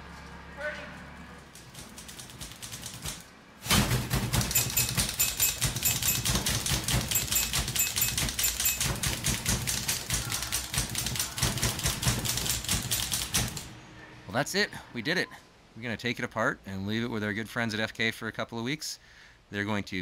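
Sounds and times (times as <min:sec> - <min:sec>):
typewriter keys clacking: 0:01.5 - 0:13.7.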